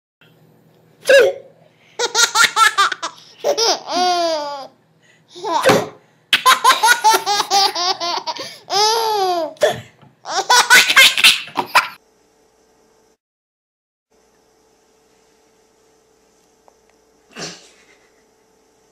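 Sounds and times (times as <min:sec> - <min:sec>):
baby laughing: 0:02.0 - 0:05.8, 0:06.4 - 0:09.6, 0:10.2 - 0:12.0.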